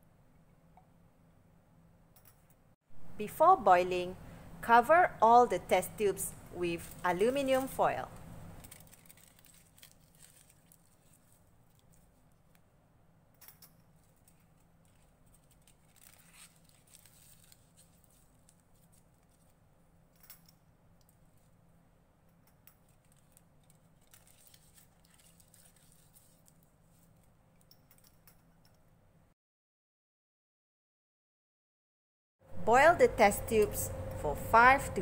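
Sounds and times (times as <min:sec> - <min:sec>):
low room hum: 0:00.0 - 0:29.4, 0:32.4 - 0:35.0
aluminium foil crinkling: 0:06.6 - 0:12.6, 0:14.0 - 0:19.6, 0:22.8 - 0:27.3.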